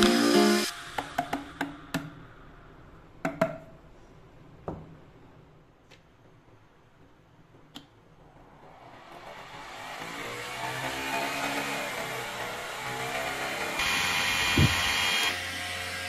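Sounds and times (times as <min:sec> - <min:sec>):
rising noise: 0:08.2 - 0:15.3.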